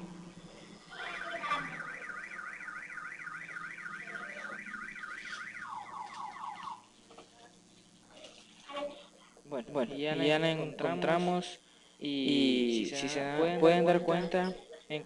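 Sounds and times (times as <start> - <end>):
warbling electronic alarm tone: 0.0 - 6.9.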